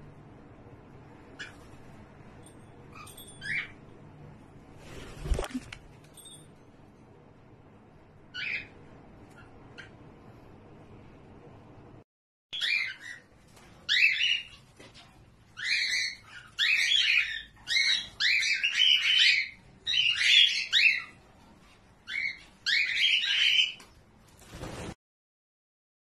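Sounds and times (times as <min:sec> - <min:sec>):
cockatiels calling: 0:08.3 - 0:10.0, 0:12.6 - 0:21.2, 0:22.0 - 0:23.8.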